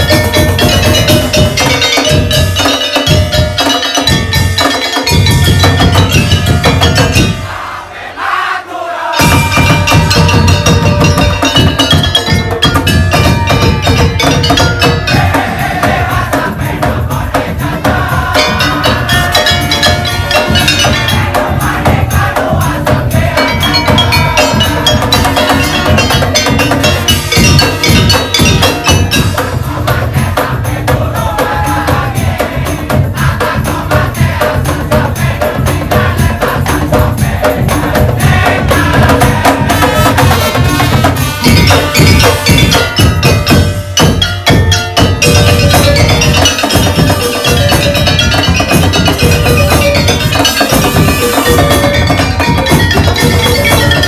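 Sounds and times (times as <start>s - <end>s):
pitched melodic line: 0.0s - 7.5s, 9.2s - 16.1s, 18.2s - 22.6s, 23.2s - 29.7s, 39.6s - 54.0s
barrel drums beating: 0.0s - 7.8s, 9.2s - 54.0s
tambourine: 9.2s - 54.0s.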